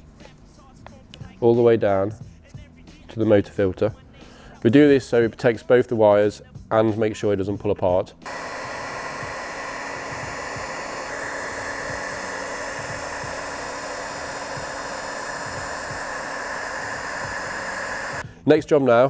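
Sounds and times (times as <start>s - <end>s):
heat gun blowing air: 8.2s - 18.2s.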